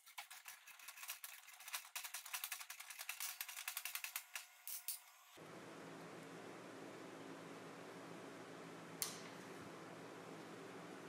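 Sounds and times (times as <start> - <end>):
small metallic clicks and rattles: 0.0 - 5.1.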